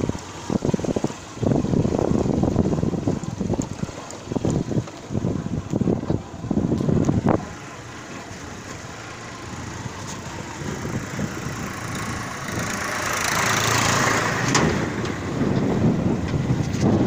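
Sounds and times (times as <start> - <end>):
road and wind noise: 0.0 - 17.0
vehicle engine running: 0.0 - 17.0.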